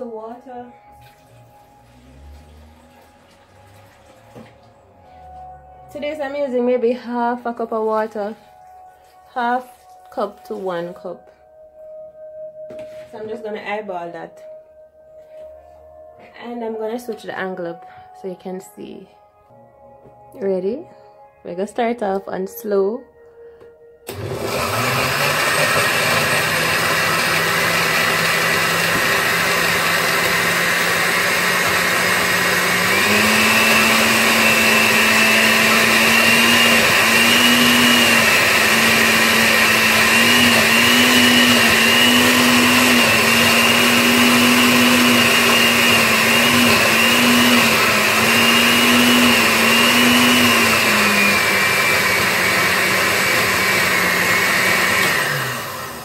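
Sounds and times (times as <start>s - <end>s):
blender motor grinding thick paste: 24.1s - 56.0s.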